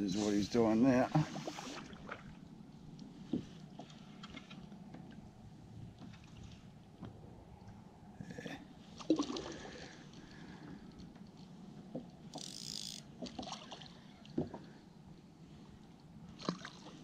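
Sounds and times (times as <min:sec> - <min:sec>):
small water splashes: 0:01.1 - 0:02.4, 0:09.0 - 0:10.6, 0:13.2 - 0:14.7, 0:16.3 - 0:17.0.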